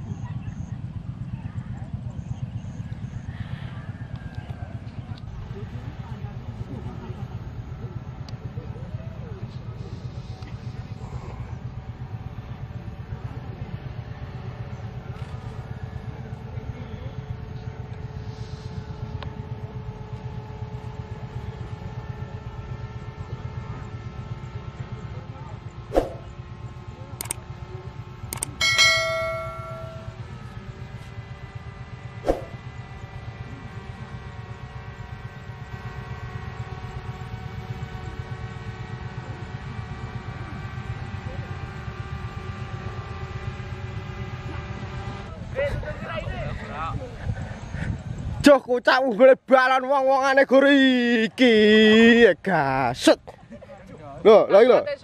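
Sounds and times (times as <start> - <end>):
small engine running: 0.0 - 48.5, 49.5 - 55.0.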